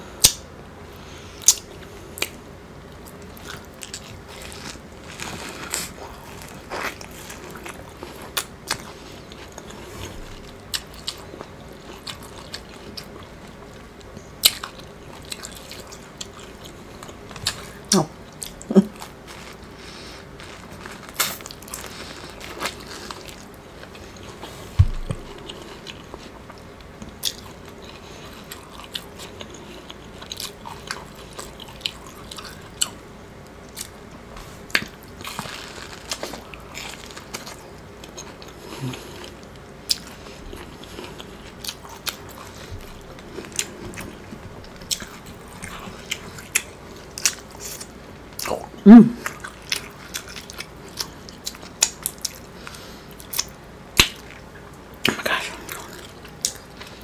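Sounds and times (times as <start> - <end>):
chewing corn kernels: 1.4 - 34.0, 34.7 - 57.0
dull thump: 24.8 - 25.2.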